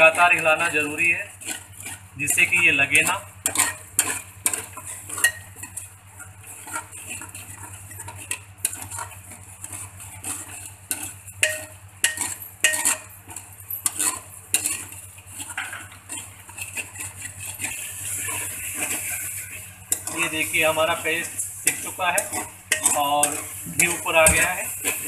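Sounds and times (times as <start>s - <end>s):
metal spoon scraping a pot: 0.0s - 25.0s
paste sizzling in ghee: 0.0s - 25.0s.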